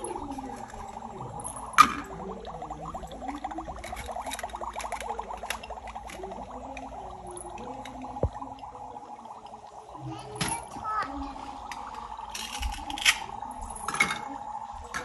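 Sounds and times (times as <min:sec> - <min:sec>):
plastic toy pots clicking: 0:00.0 - 0:08.4, 0:11.6 - 0:15.0
electronic bubbling sound effect: 0:00.0 - 0:15.0.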